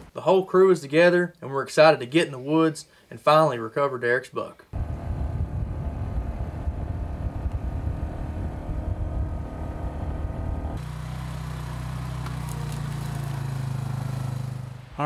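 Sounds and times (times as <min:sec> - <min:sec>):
low rumble: 0:04.8 - 0:10.8
quad bike engine running: 0:04.8 - 0:14.9.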